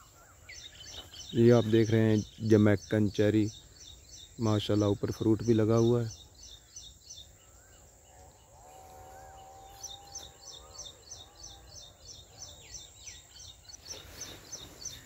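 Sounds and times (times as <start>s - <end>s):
small bird chirping: 0.0s - 15.0s.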